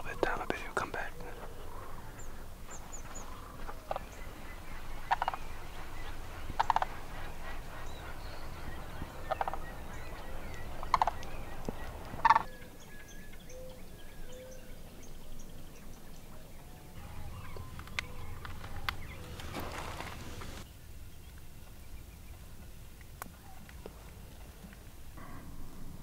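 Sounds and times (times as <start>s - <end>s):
cranes rattling calls: 0.0s - 12.5s, 17.0s - 20.6s
small birds chirping: 0.0s - 26.0s.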